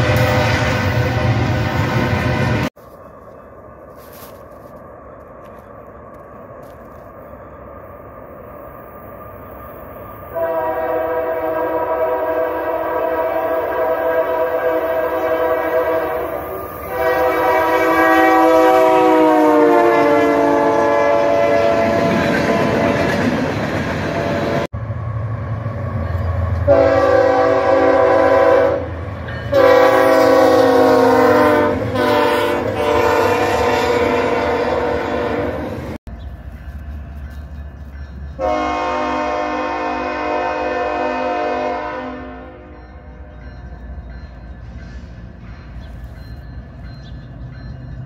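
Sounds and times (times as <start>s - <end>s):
locomotive air horn blasts: 0.0s - 2.6s, 10.3s - 23.1s, 26.7s - 35.8s, 38.4s - 42.8s
passing train rumble: 0.0s - 48.0s.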